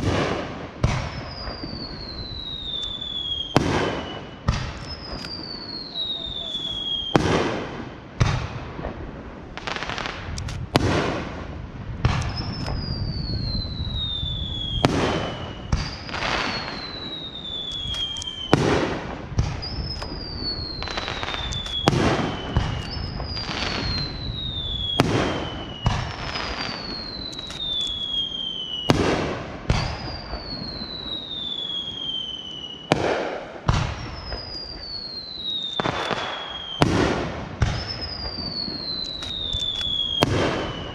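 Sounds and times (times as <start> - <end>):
firework bangs: 0.0 - 40.9
firework whistles sliding down: 1.0 - 7.3, 12.2 - 18.8, 19.4 - 33.1, 33.8 - 40.9.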